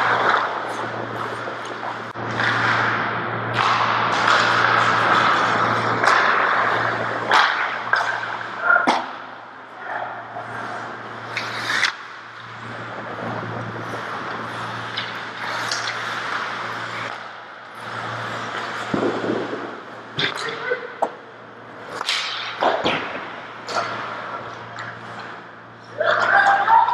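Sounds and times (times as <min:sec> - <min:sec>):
skates scraping on ice: 0:00.0 - 0:09.2, 0:10.0 - 0:20.2
hockey sticks clacking: 0:00.0 - 0:21.2, 0:21.8 - 0:26.9
steady low hum: 0:00.0 - 0:26.9.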